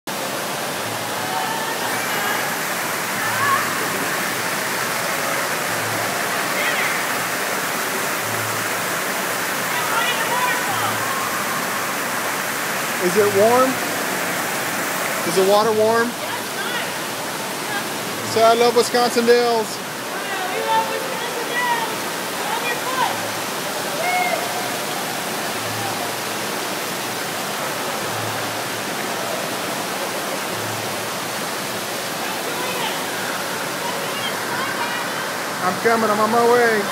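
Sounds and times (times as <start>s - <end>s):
rush of circulating water: 0.1s - 36.9s
faint voices: 19.7s - 36.9s.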